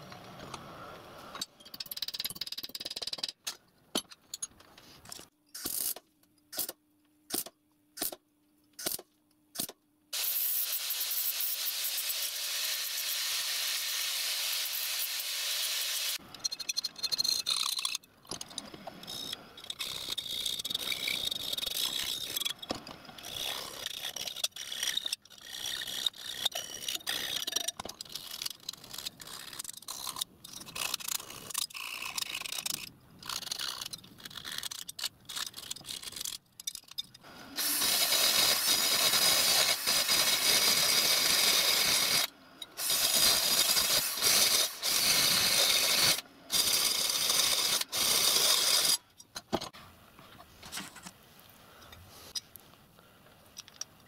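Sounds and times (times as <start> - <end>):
angle grinder cutting steel: 37.6 - 49.0.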